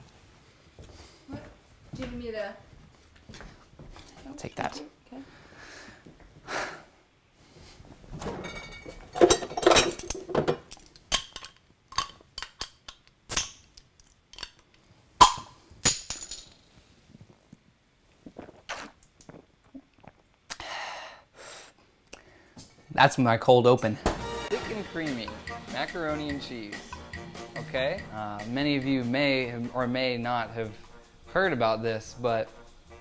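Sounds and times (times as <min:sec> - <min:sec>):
glass bottles clinking: 0:08.4 - 0:12.2.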